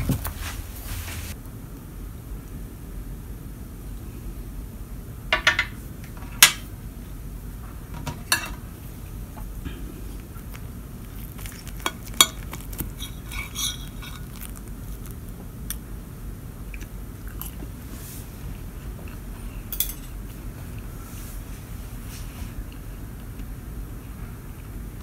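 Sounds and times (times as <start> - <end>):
steady low hum: 0.0 - 25.0
cutlery clinking on a plate: 11.8 - 14.3, 19.7 - 20.2.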